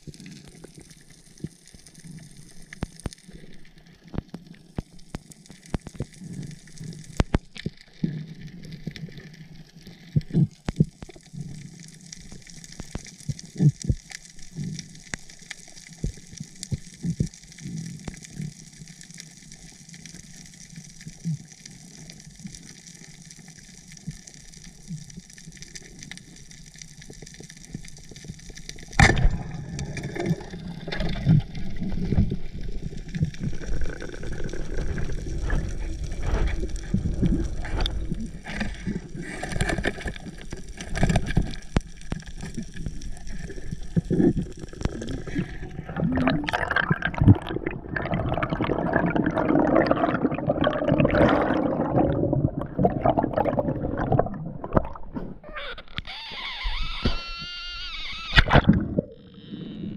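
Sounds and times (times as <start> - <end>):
air bubbles gurgling: 24.1 - 55.5, 58.4 - 59.4.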